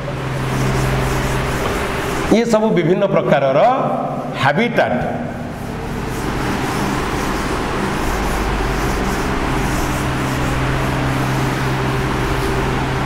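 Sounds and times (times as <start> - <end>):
duster wiping chalkboard: 0.0 - 13.0
vehicle engine running: 5.5 - 13.0.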